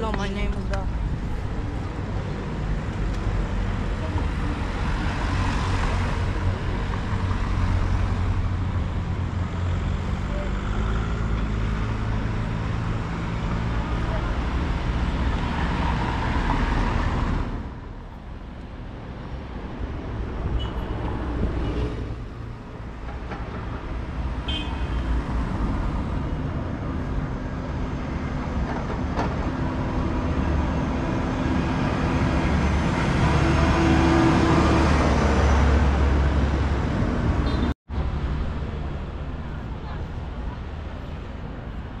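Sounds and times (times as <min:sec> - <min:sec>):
motor vehicles passing: 0:00.0 - 0:42.0.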